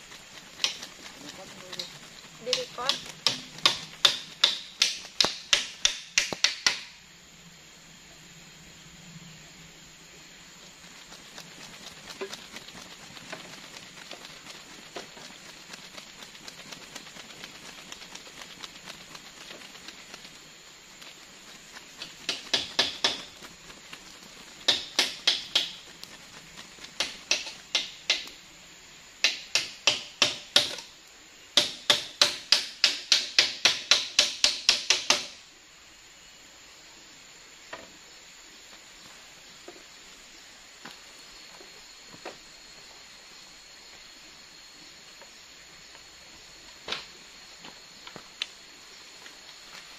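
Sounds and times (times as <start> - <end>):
hammer striking nails into wood: 2.9 - 6.9, 29.2 - 30.8, 31.6 - 35.3.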